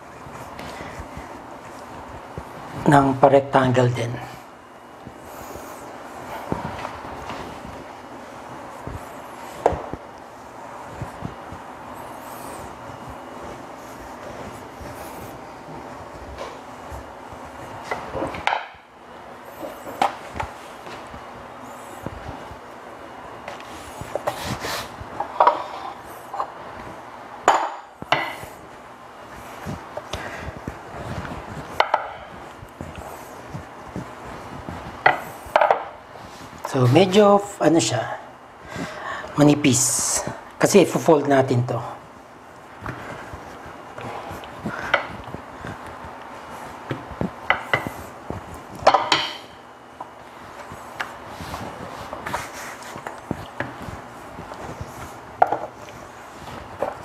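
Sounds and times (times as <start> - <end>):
rolling pin on countertop: 27.4 - 28.4, 29.6 - 36.9, 42.8 - 57.0
hands pressing dough: 29.3 - 37.2, 42.3 - 57.0.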